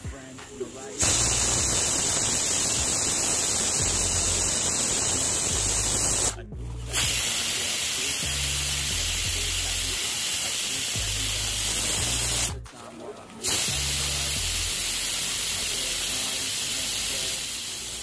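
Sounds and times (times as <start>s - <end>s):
pressure cooker whistling: 0.8s - 12.5s, 13.4s - 18.0s.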